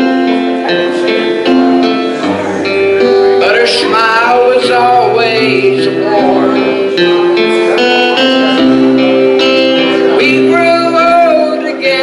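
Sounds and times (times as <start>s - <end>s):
electronic keyboard chords: 0.0s - 12.0s
man singing: 3.3s - 7.6s, 9.4s - 12.0s.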